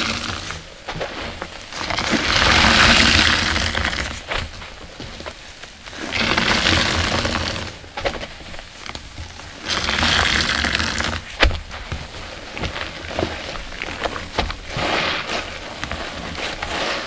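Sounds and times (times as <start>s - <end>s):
sponge squeezed hissing foam: 5.9s - 7.8s, 9.5s - 11.4s, 12.4s - 17.0s.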